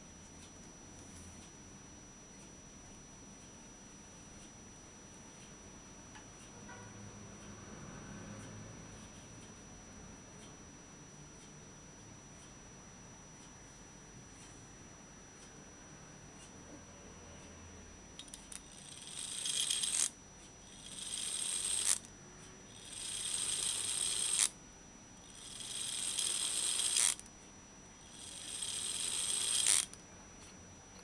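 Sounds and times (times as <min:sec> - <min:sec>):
clock gears whirring: 0:18.2 - 0:22.1, 0:22.7 - 0:24.6, 0:25.2 - 0:27.3, 0:28.0 - 0:30.0.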